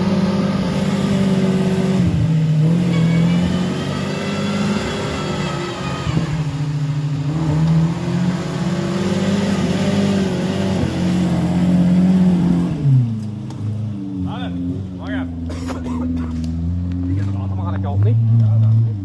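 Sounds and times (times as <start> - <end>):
engine revving hard: 0.0 - 13.1.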